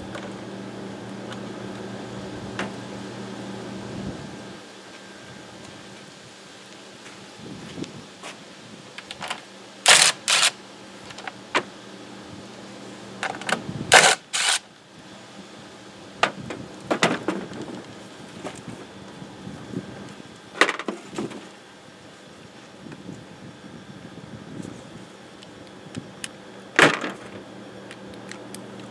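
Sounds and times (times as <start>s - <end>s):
impact driver bursts: 9.9s - 10.6s, 13.9s - 14.6s.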